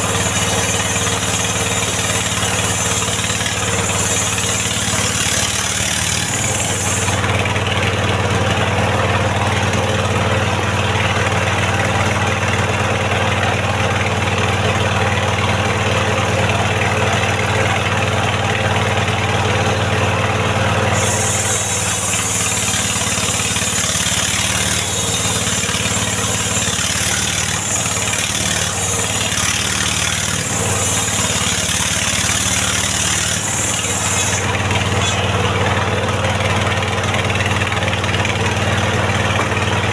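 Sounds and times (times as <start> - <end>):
saw blade hissing: 0.0 - 7.4, 20.9 - 35.8
sawmill engine running: 0.0 - 39.9.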